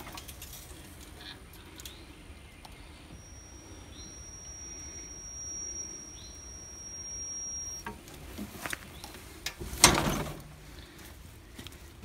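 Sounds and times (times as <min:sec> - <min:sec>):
high-pitched electronic warning tone: 0:03.1 - 0:08.1.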